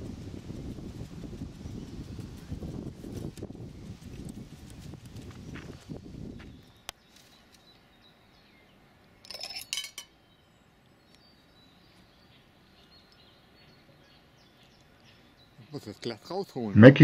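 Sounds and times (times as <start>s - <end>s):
glass clinking and knocking: 9.2s - 10.1s.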